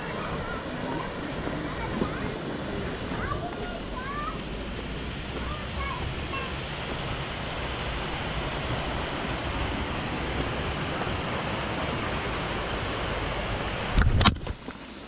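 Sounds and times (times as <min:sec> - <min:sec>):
waterfall over rocks: 0:00.0 - 0:15.0.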